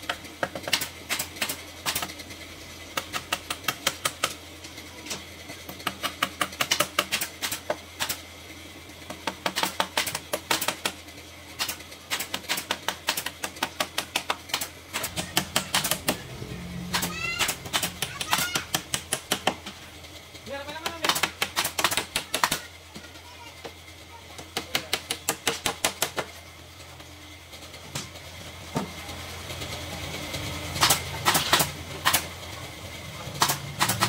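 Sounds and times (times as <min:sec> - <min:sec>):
rapid clicking and tapping: 0:05.7 - 0:08.2, 0:09.1 - 0:11.0, 0:11.6 - 0:16.2, 0:16.9 - 0:19.8, 0:20.8 - 0:22.6, 0:33.4 - 0:34.0.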